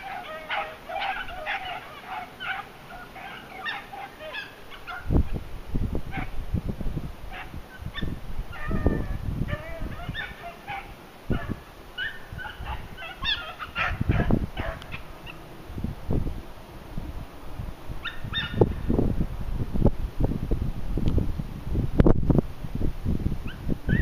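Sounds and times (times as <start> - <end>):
beagles baying: 0.0 - 5.4, 7.3 - 15.7, 18.0 - 18.7
wind buffeting microphone: 0.0 - 24.0.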